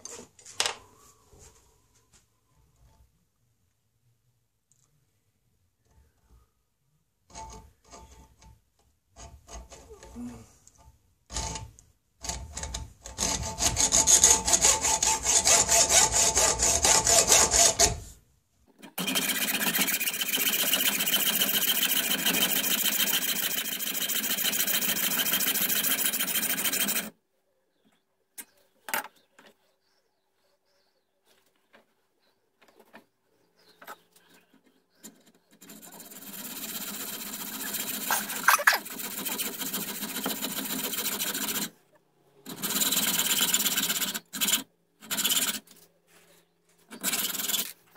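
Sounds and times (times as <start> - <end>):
hacksaw cutting metal tube: 11.3 - 18.0, 18.8 - 27.1, 35.5 - 41.7, 42.4 - 45.7, 46.9 - 47.8.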